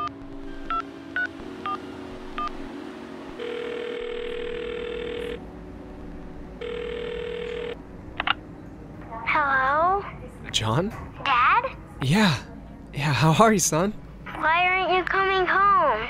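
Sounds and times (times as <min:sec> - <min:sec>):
phone ringing tone: 0:00.0 - 0:07.9.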